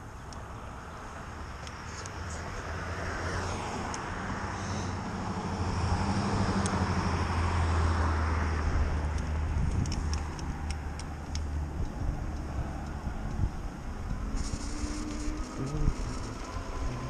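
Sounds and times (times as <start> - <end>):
vehicle engine running: 9.5 - 17.0.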